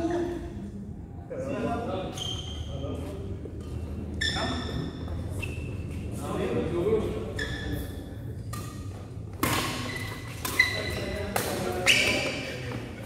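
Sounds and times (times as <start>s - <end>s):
badminton rackets hitting shuttlecock: 8.4s - 12.6s.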